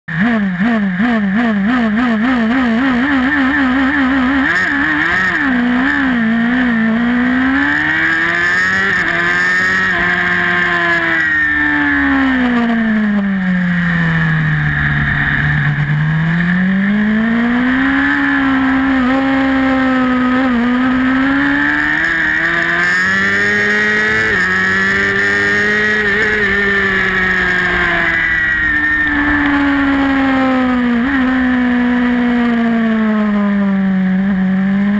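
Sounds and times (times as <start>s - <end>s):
motorbike engine revving: 0.1s - 34.9s.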